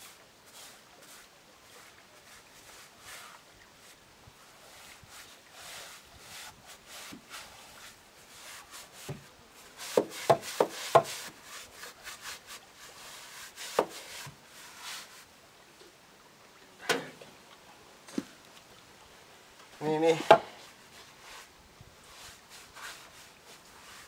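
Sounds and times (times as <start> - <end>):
paintbrush scrubbing on wood: 0.0 - 15.3, 20.9 - 24.0
sharp wooden knocks: 9.9 - 11.2, 20.2 - 20.5.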